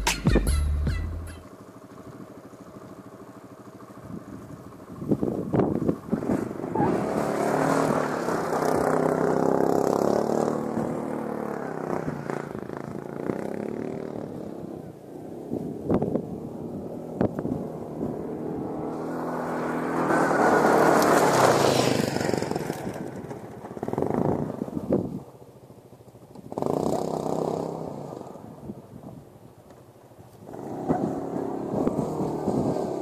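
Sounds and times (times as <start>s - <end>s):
quad bike engine revving: 5.0s - 24.8s, 26.3s - 28.5s, 30.5s - 33.0s.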